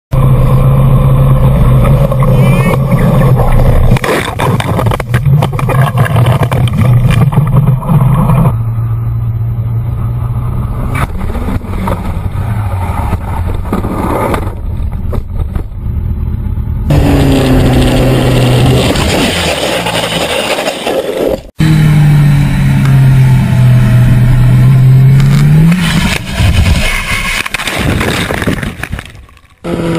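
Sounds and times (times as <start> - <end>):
motorcycle crashing and scraping: 1.7 - 8.6, 10.7 - 16.3, 16.9 - 21.6, 24.2 - 29.9
wind noise on microphone: 25.8 - 29.9.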